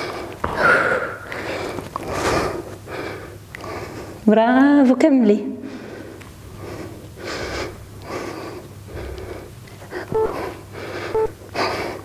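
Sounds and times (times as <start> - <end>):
woman breathing hard and fast: 0.0 - 4.3, 5.6 - 12.0
electronic countdown beeps: 10.1 - 10.5, 11.1 - 11.4.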